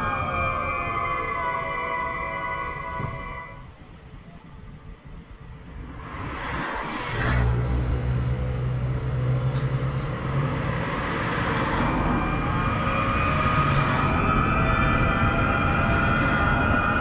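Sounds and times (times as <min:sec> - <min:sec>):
high whine: 0:00.0 - 0:17.0
road traffic rumble: 0:05.1 - 0:17.0.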